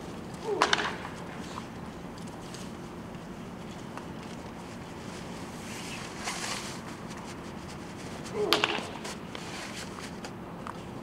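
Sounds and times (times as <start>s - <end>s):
bat hitting ball crack: 0.5s - 1.1s, 8.4s - 9.0s.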